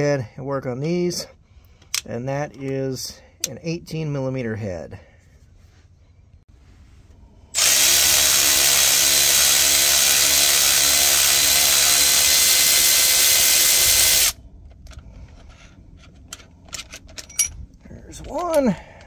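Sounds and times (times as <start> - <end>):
electric ratchet running: 7.6 - 14.4.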